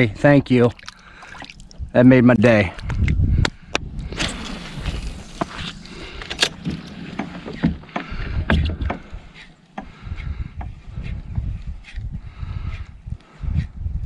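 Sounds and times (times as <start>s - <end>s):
steady low rumble: 0.0s - 14.0s
gear knocking against kayak hull: 6.2s - 10.8s.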